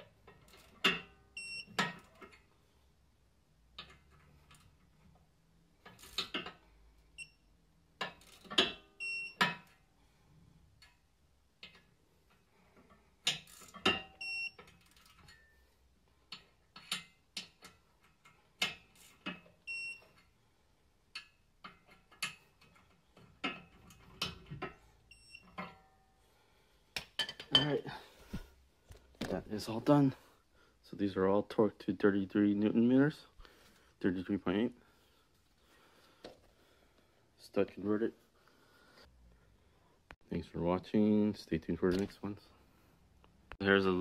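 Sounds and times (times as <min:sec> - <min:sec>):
torque wrench beeps: 0:01.3 - 0:01.8, 0:07.2 - 0:07.5, 0:08.9 - 0:09.5, 0:13.9 - 0:14.7, 0:19.6 - 0:20.2, 0:25.1 - 0:25.6.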